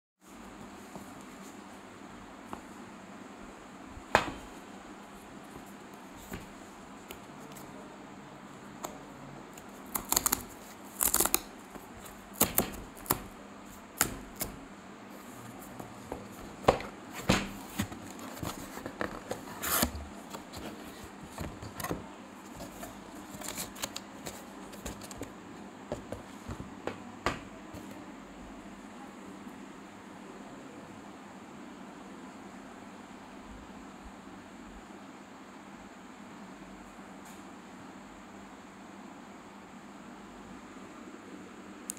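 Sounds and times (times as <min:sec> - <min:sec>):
box rustling: 0:15.8 - 0:25.4.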